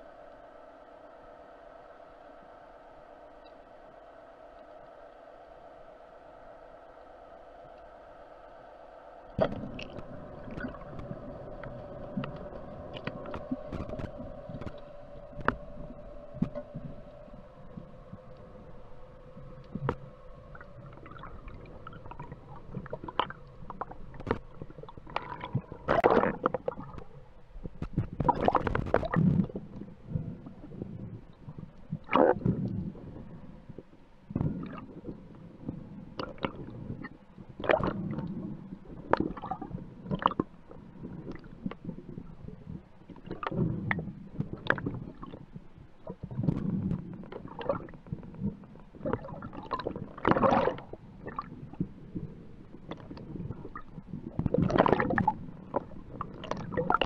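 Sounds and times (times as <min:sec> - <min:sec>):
water gurgling: 0:00.0 - 0:57.0
gear clicking and knocking underwater: 0:09.4 - 0:57.0.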